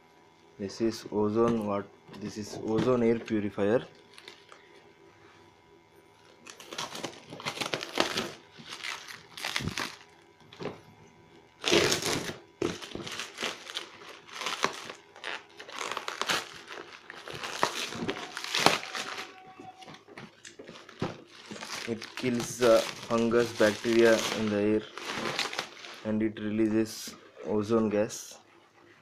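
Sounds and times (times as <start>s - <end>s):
plastic wrap crinkling and tearing: 4.0s - 4.6s, 6.2s - 10.7s, 11.6s - 26.1s
knife cutting plastic wrap: 6.4s - 10.0s, 11.6s - 20.0s, 20.6s - 26.1s.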